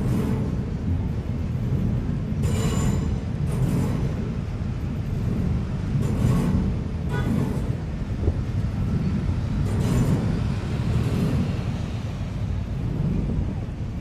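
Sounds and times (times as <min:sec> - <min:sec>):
train rumbling over bridge: 0:00.0 - 0:14.0.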